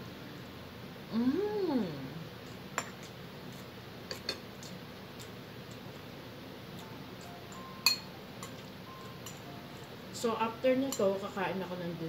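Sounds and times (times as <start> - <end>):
woman humming mmm while eating: 1.1 - 2.3.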